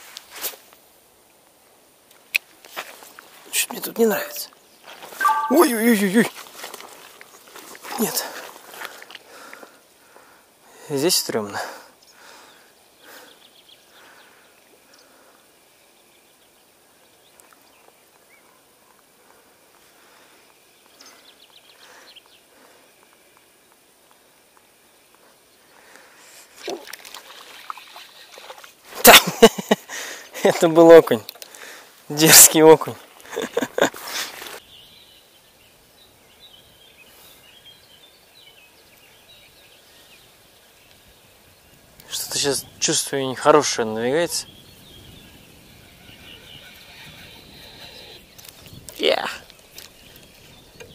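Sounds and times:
open-air hiss: 0.0s - 50.9s
outdoor background noise: 0.0s - 50.9s
songbirds chirping: 0.8s - 50.9s
high chirp: 4.1s - 4.5s, 5.2s - 6.1s.

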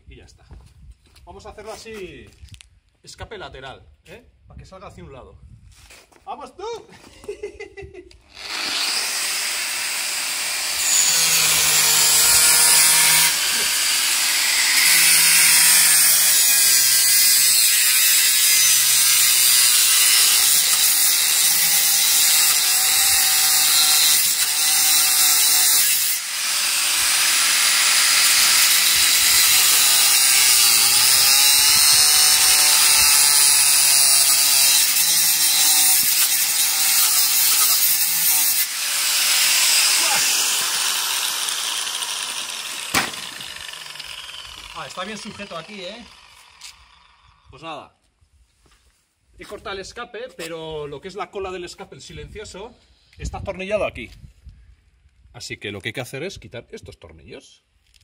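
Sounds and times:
angle grinder cutting metal pipe: 8.3s - 47.5s.

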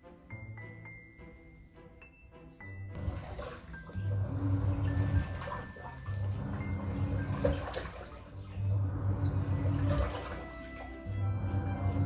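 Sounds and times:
washing machine motor humming: 3.0s - 12.0s
water sloshing: 3.0s - 12.0s.

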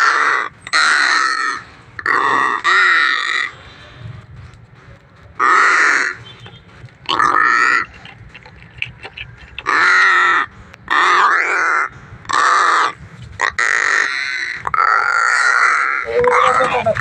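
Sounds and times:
crow cawing: 0.0s - 3.5s, 5.4s - 6.2s, 9.6s - 17.0s.

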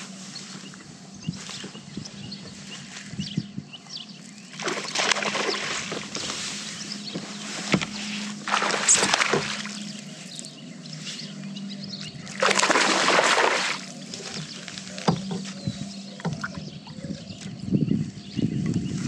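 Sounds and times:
steady low hum: 0.0s - 19.0s
water splashing around kayak: 4.4s - 10.6s, 12.2s - 16.7s.

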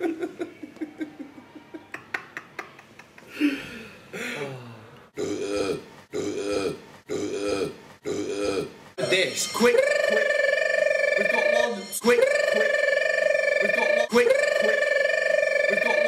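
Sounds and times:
men laughing: 0.0s - 4.4s, 9.6s - 16.0s.

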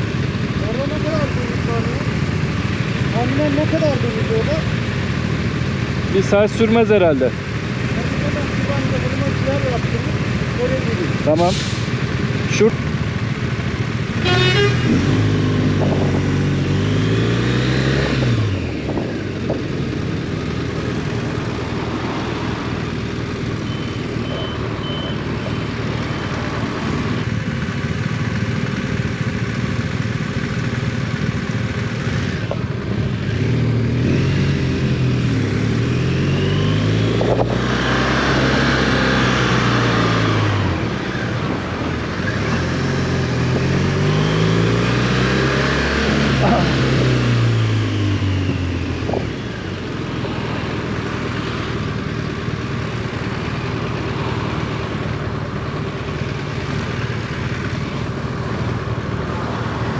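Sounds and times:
motorcycle engine accelerating: 0.0s - 59.9s
wind and road noise: 0.0s - 59.9s.

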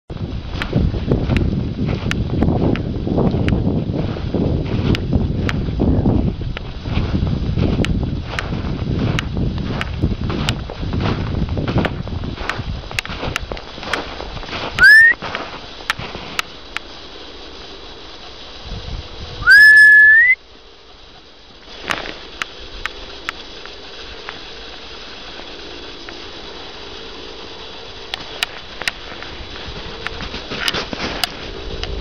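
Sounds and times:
loud rising whistles: 14.8s - 15.2s, 19.4s - 20.4s
short scattered clicks: 21.7s - 32.0s.

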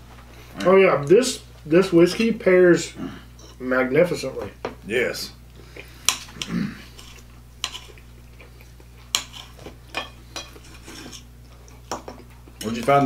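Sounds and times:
cutlery scraping on plates: 6.1s - 8.0s, 9.1s - 11.3s.

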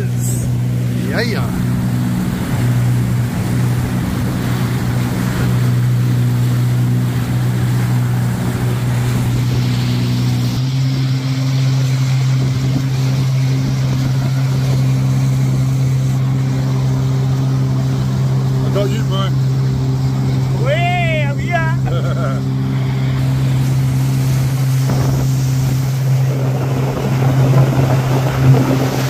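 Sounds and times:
jet ski engine running: 0.0s - 29.0s
rushing water: 0.0s - 29.0s.

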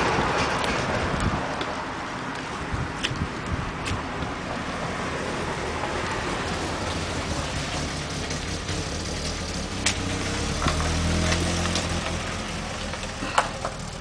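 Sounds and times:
vehicle engine passing: 4.5s - 14.0s.

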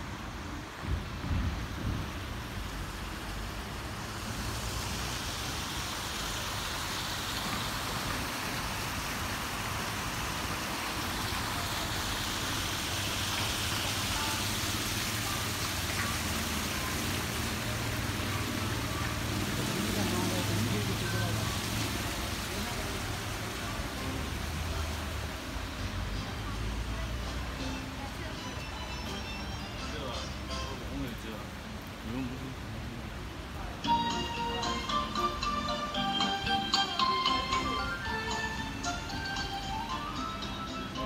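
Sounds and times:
distant traffic hum: 0.0s - 41.0s
rain falling on street: 0.0s - 41.0s.

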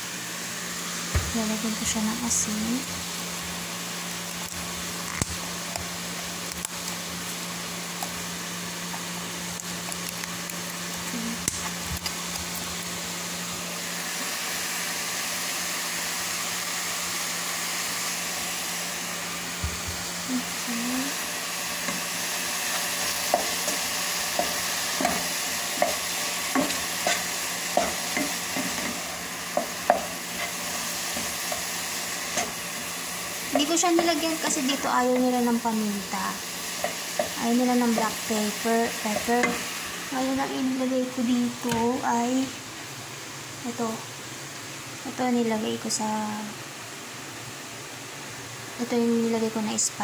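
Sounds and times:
meat sizzling in a frying pan: 0.0s - 50.0s
wooden spatula tapping a pan: 23.2s - 30.5s.

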